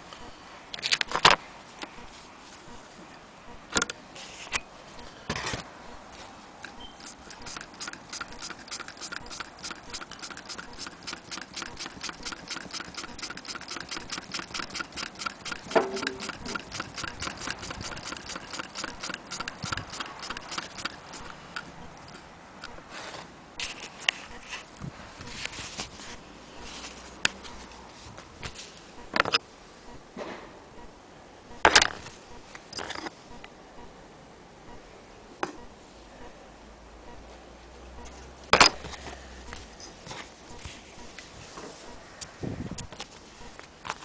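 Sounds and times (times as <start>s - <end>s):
sewing machine fast ticking: 7.0s - 21.4s.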